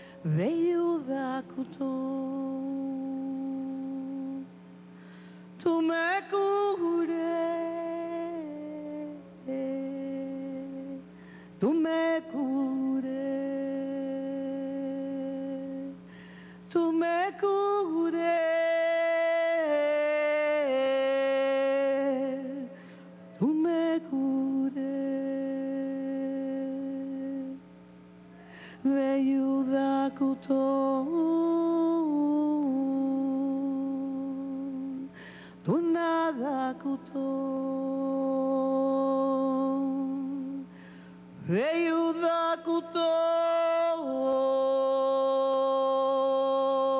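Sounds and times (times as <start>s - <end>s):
woman chanting long notes: 28.8s - 35.1s.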